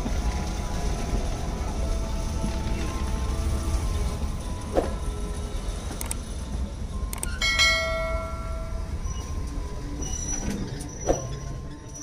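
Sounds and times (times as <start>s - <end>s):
train rumble from carriage: 0.0s - 12.0s
bell-like ding: 7.4s - 8.9s.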